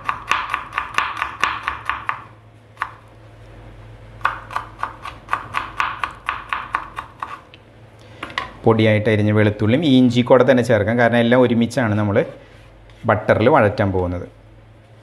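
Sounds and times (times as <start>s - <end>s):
knife chopping on wooden board: 0.0s - 3.0s, 4.2s - 7.4s.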